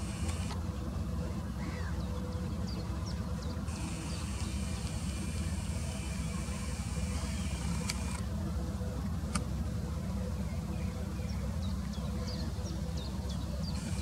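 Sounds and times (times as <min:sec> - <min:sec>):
distant road traffic rumble: 0:00.0 - 0:14.0
faint clicks: 0:07.6 - 0:08.3.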